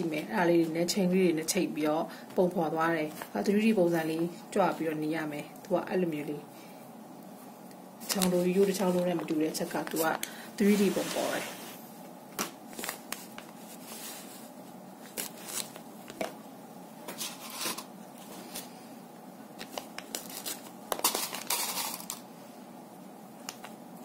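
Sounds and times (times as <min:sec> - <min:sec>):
cloth rustling: 0:08.0 - 0:11.9.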